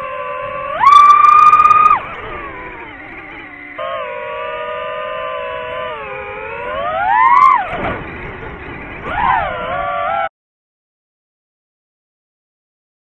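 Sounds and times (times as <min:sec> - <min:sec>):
drone propellers whining: 0:00.0 - 0:10.3.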